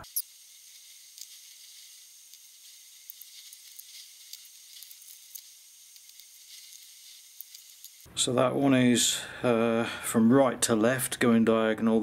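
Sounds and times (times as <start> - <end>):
steady high hiss: 0.0 - 10.8
brush dabbing resin: 0.1 - 8.1.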